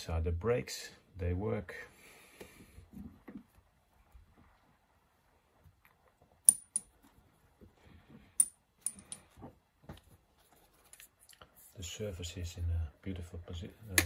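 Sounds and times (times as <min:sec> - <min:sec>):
metal parts clicking and clinking: 0:08.4 - 0:09.3.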